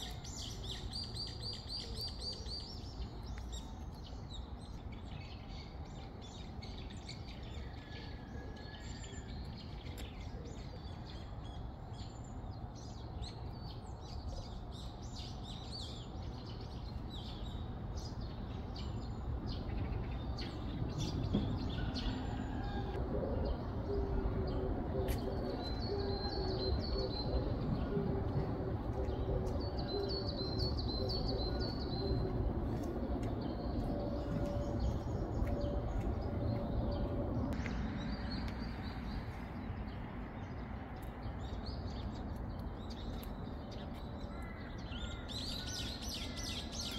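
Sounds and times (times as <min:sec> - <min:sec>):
songbirds chirping: 0:00.0 - 0:46.9
low outdoor rumble: 0:16.0 - 0:45.4.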